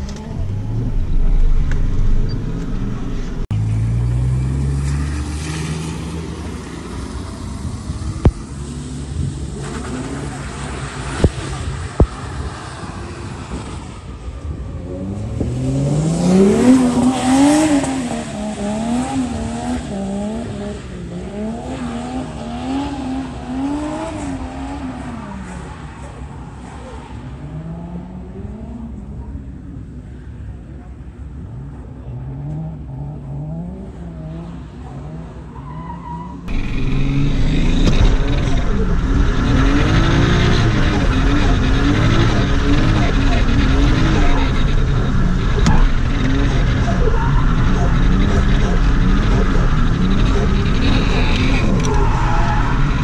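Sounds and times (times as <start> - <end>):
car engine revving: 0.0 - 26.2, 36.5 - 53.0.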